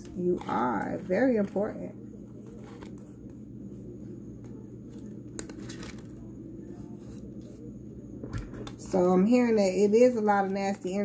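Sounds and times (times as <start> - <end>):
steady low hum: 0.0 - 11.0
cards being handled and laid out: 2.4 - 3.4, 4.4 - 7.6.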